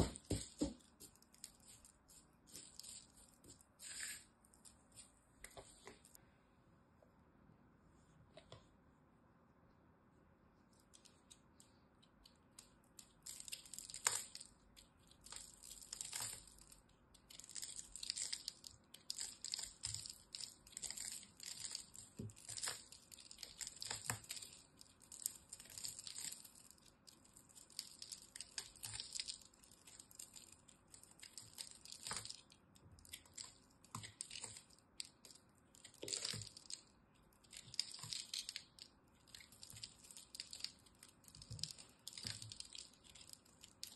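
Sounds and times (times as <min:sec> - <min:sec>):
knife cutting crumbly soap: 0:13.1 - 0:43.9.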